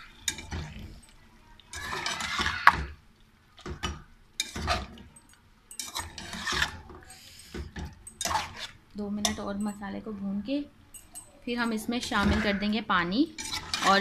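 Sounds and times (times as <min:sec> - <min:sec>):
metal spatula scraping a pot: 0:00.0 - 0:01.1, 0:01.7 - 0:02.8, 0:03.8 - 0:05.1, 0:05.8 - 0:07.6, 0:08.2 - 0:09.4, 0:11.6 - 0:14.0.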